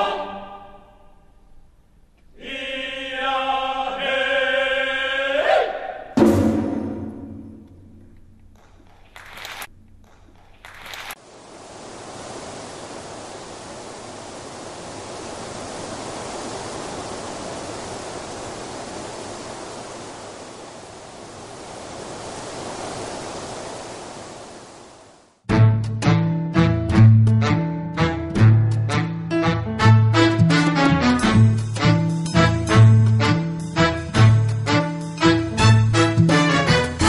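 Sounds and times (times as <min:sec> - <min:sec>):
music: 0:06.2 - 0:07.7, 0:25.5 - 0:37.0
waterfall rushing: 0:10.9 - 0:25.3.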